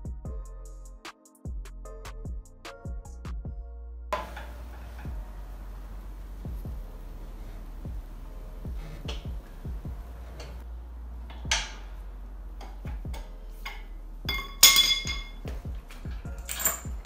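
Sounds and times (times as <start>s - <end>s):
background music with a beat: 0.0s - 5.4s, 6.3s - 7.0s, 7.8s - 10.6s, 12.6s - 17.0s
chain and hook clinking on metal: 14.3s - 15.4s, 16.0s - 17.0s.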